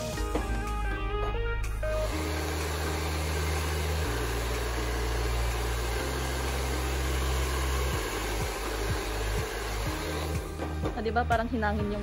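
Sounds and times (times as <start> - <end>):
hair dryer blowing: 1.8 - 10.9.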